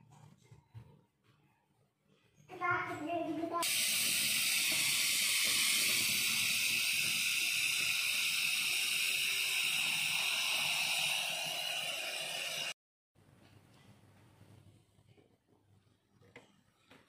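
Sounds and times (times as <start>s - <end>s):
water pouring into a pot: 3.6s - 12.8s.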